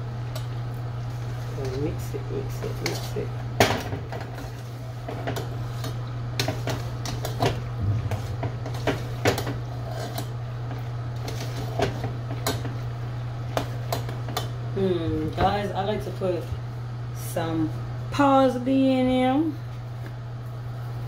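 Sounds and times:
steady low hum: 0.0 - 21.0
utensil scraping in saucepan: 1.0 - 3.4, 4.2 - 12.9.

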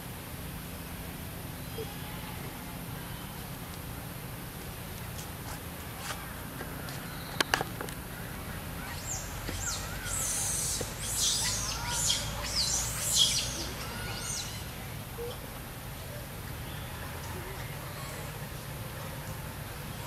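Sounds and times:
birds chirping: 5.0 - 20.0.

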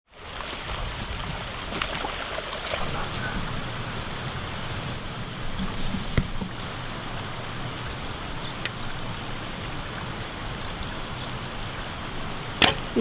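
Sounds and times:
rushing outdoor noise: 0.1 - 13.0
sharp click: 12.6 - 12.8.

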